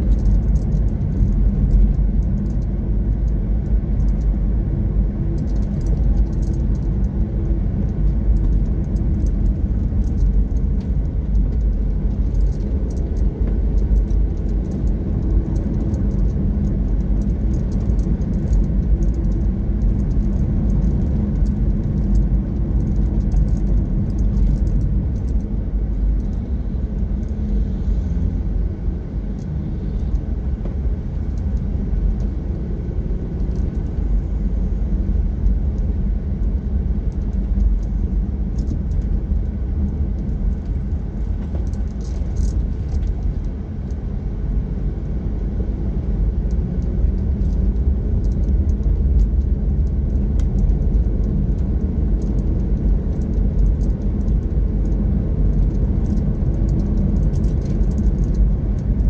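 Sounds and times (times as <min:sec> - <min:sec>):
car driving on road: 0:00.0 - 0:59.0.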